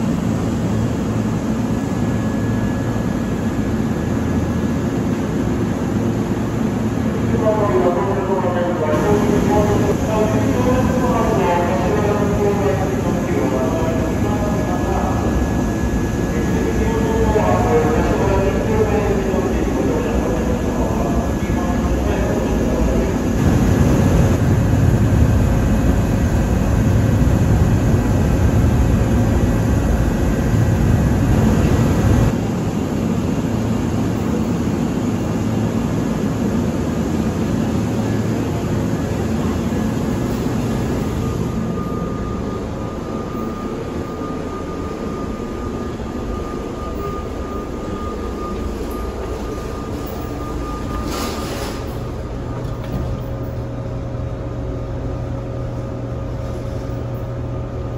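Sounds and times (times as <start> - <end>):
electric train rumbling: 0.0 - 57.9
steady high tone: 39.0 - 52.6.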